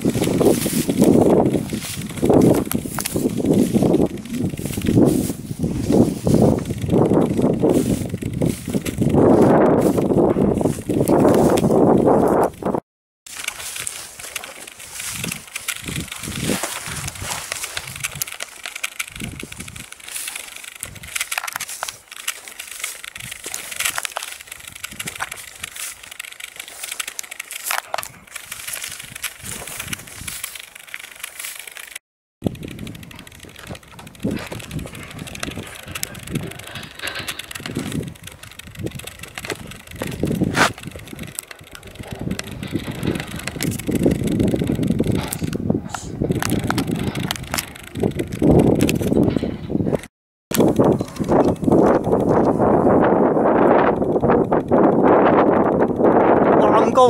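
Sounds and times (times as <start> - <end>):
footfalls on dry grass: 0.0 - 12.4, 13.3 - 32.0
rustling: 0.0 - 12.6, 13.3 - 45.5
dry stems and leaves crackling: 0.0 - 12.7, 13.3 - 49.4, 50.5 - 57.0.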